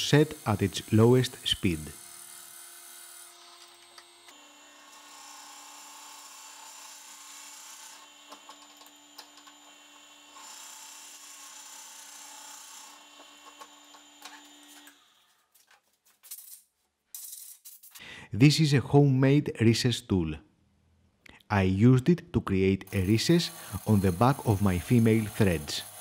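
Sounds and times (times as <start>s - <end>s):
drill bit scraping wood: 0.0s - 1.8s, 22.9s - 26.0s
wood lathe humming: 0.0s - 15.0s, 22.9s - 26.0s.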